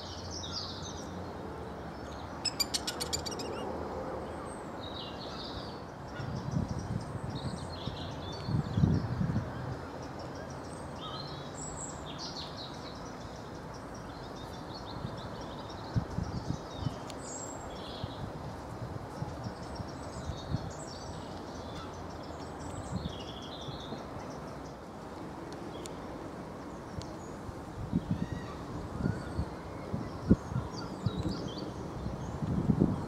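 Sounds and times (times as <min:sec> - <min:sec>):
high chirping calls: 0:02.4 - 0:03.7.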